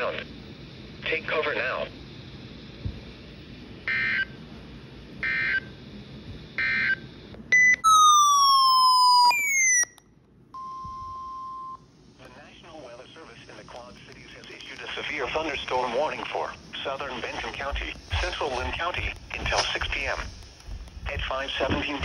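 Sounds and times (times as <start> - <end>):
electronic siren-like alert: 7.6 - 10.0
steady beep tone: 7.6 - 10.0, 10.6 - 11.8
two-tone digital data chirps: 7.6 - 10.0.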